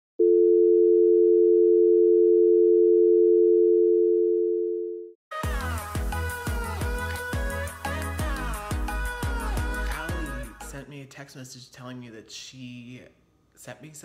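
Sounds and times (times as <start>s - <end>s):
music with strong beat: 5.4s - 10.8s.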